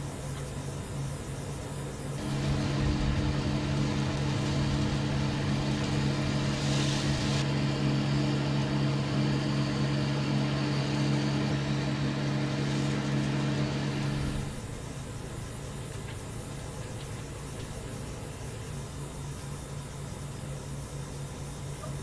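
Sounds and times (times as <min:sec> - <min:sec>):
brief hiss: 0:02.2 - 0:07.4
vehicle engine idling: 0:02.2 - 0:18.8.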